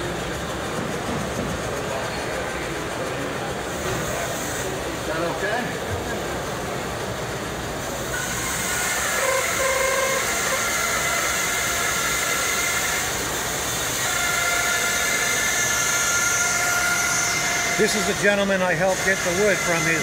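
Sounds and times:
bandsaw cutting wood: 0:08.1 - 0:20.0.

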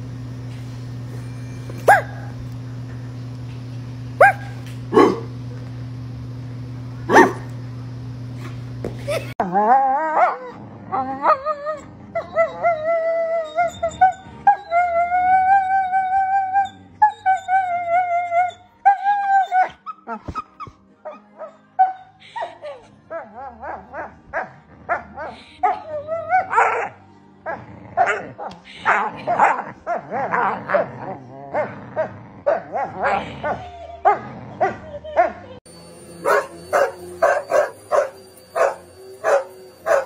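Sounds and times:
steady hum: 0:00.0 - 0:09.4, 0:35.7 - 0:40.0
dogs whining: 0:01.2 - 0:02.4, 0:04.2 - 0:05.3, 0:09.0 - 0:34.9, 0:35.7 - 0:40.0
dog barking: 0:01.9 - 0:02.3, 0:04.2 - 0:05.3, 0:07.1 - 0:07.5, 0:32.5 - 0:33.6, 0:36.2 - 0:40.0
dog yapping: 0:01.9 - 0:02.3, 0:04.2 - 0:05.3, 0:36.3 - 0:40.0.

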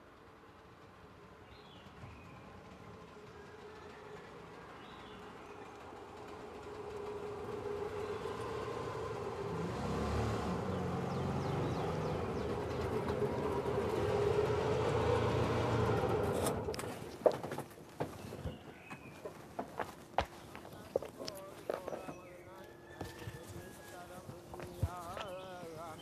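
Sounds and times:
auto-rickshaw engine running: 0:01.5 - 0:17.2.

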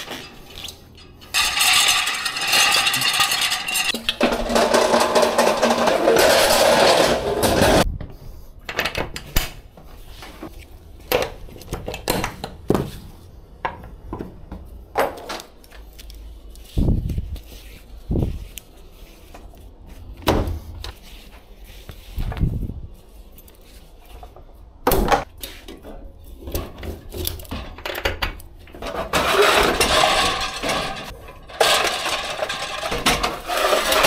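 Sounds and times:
pallet jack rolling: 0:01.2 - 0:07.9, 0:28.8 - 0:34.0.

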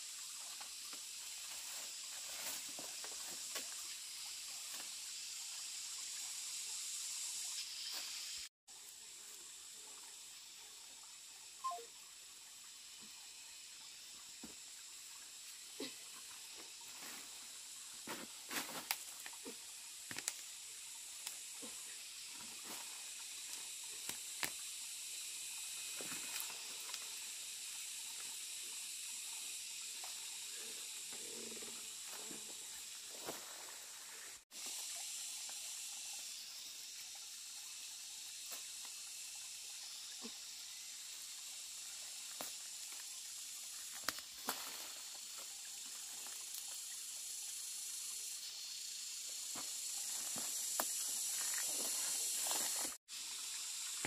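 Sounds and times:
steady high hiss: 0:11.4 - 0:54.0.

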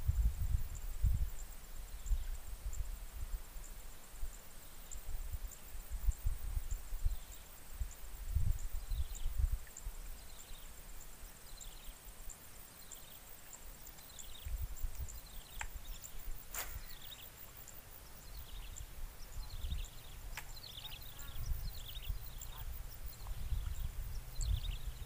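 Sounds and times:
wind rumbling on microphone: 0:00.0 - 0:10.6, 0:14.3 - 0:17.0, 0:18.3 - 0:25.0
bird chirping: 0:13.9 - 0:25.0.

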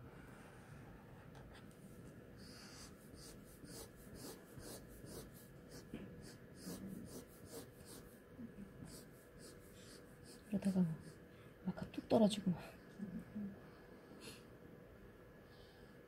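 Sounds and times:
felt marker scratching on paper: 0:02.4 - 0:08.2, 0:08.8 - 0:11.2.

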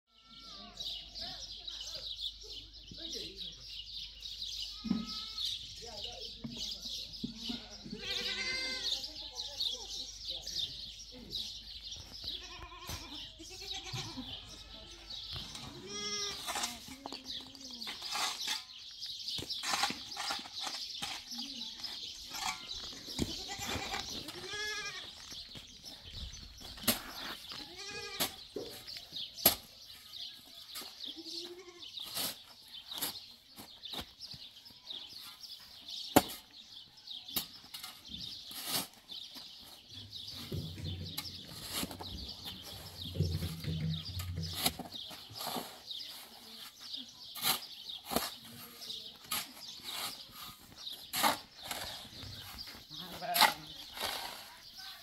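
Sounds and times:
livestock bleating: 0:00.1 - 0:00.8, 0:04.7 - 0:05.6, 0:07.5 - 0:09.0, 0:12.3 - 0:16.5, 0:23.3 - 0:25.1, 0:27.6 - 0:28.3, 0:31.1 - 0:31.9.

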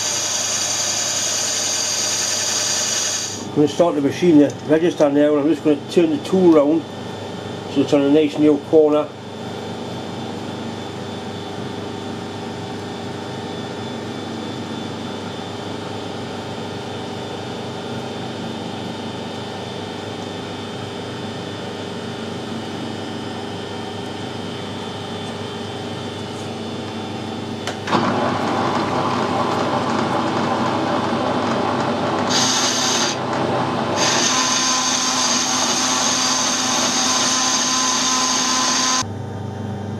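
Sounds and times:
metal lathe running: 0:00.0 - 0:06.8, 0:27.6 - 0:39.0
machine shop hum: 0:00.0 - 0:39.9.

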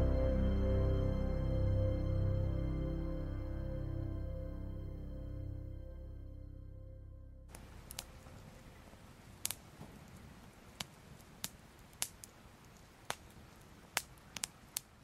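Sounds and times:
faint flame crackling: 0:07.5 - 0:15.0.

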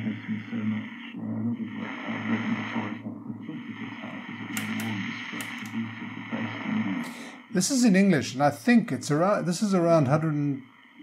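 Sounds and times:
muffled voice from radio loudspeaker: 0:00.0 - 0:10.6
sharp clicks: 0:04.5 - 0:05.8.

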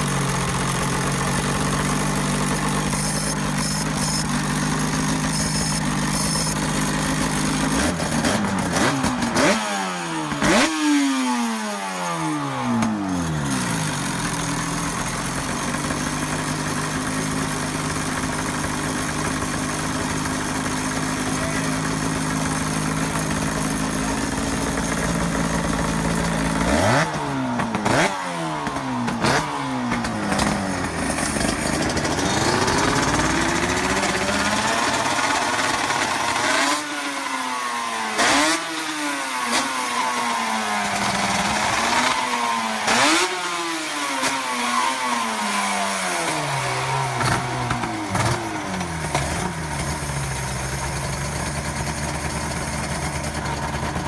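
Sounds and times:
motorcycle engine revving: 0:00.0 - 0:54.0
exhaust cracks: 0:28.6 - 0:36.4.

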